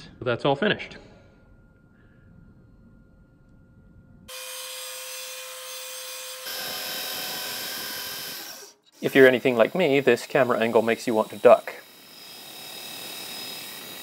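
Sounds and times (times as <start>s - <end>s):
belt grinder whining: 4.3s - 14.0s
steel grinding on belt: 4.3s - 14.0s.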